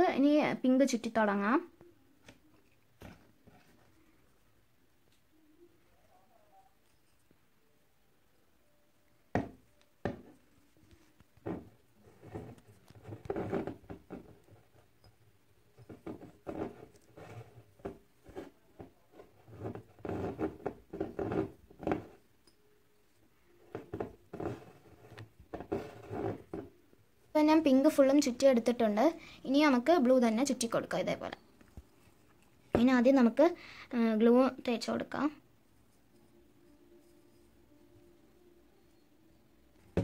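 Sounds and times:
knocks on glass bottle: 9.4s - 10.3s
yarn rustling and scraping: 10.3s - 14.9s, 15.8s - 22.2s, 23.7s - 26.7s.

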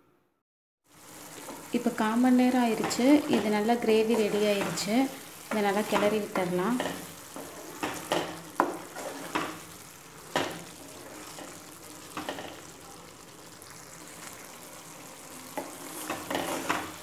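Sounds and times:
gravy sizzling in a pan: 0.8s - 17.0s
wooden spatula scraping a pan: 2.6s - 12.6s, 14.1s - 17.0s.

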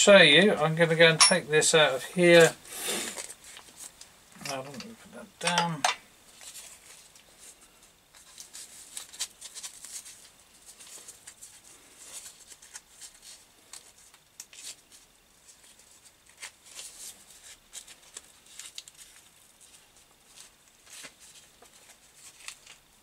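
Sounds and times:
metal tools clicking and tapping: 4.4s - 6.0s.

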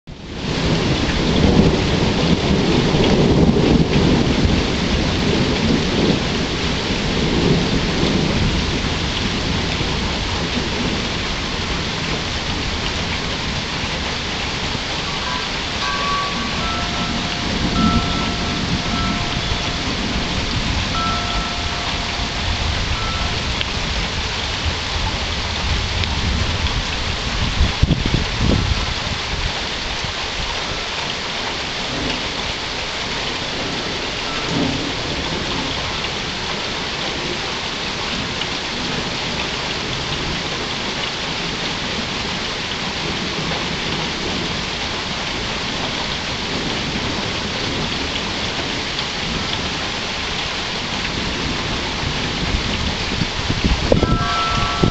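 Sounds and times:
steady rain falling: 0.1s - 54.9s
thunder rumbling: 0.4s - 29.6s, 31.8s - 37.5s, 43.0s - 54.9s.

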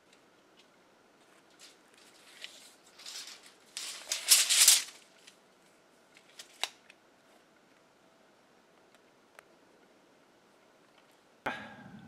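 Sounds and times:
measuring tape rattling hiss: 0.0s - 5.4s.

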